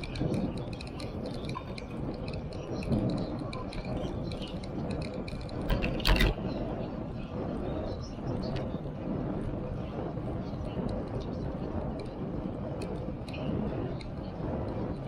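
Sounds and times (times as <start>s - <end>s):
bicycle clicking and rattling: 0.0s - 6.6s, 10.5s - 15.0s
bicycle tyre noise: 0.0s - 15.0s
wind rumble on microphone: 0.0s - 15.0s.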